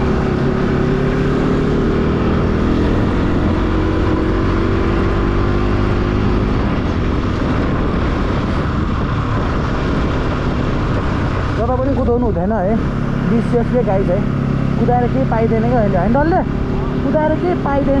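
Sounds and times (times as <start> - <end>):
wind noise: 0.0 - 13.3
motorcycle engine running: 0.0 - 18.0
road noise: 0.0 - 18.0.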